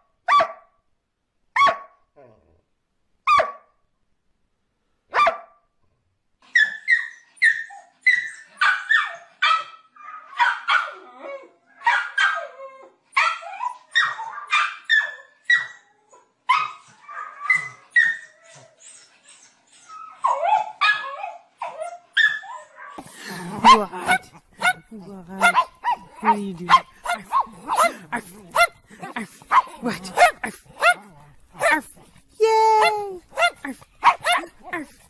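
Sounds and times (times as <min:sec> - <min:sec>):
small dog barking and yipping: 0:00.3 - 0:00.6, 0:01.6 - 0:02.0, 0:03.3 - 0:03.6, 0:05.1 - 0:05.5, 0:06.5 - 0:11.1, 0:11.8 - 0:12.6, 0:13.2 - 0:15.8, 0:16.5 - 0:18.7, 0:19.9 - 0:35.0
dog sharp bark: 0:00.3 - 0:00.7, 0:01.6 - 0:02.0, 0:03.3 - 0:03.7, 0:05.1 - 0:05.6, 0:23.6 - 0:24.8, 0:25.4 - 0:31.9, 0:32.8 - 0:34.9.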